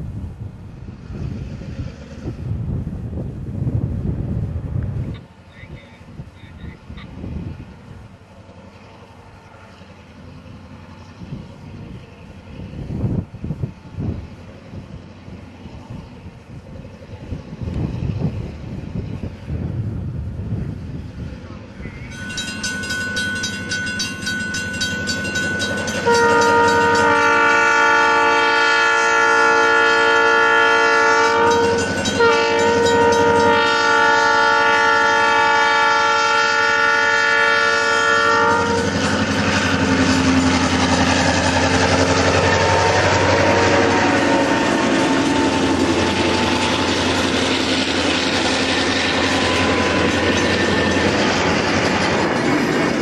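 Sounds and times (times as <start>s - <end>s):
diesel locomotive engine running: 0.0s - 53.0s
train wheels rolling over rails: 7.1s - 53.0s
locomotive air horn chord: 22.0s - 40.4s, 41.8s - 47.2s.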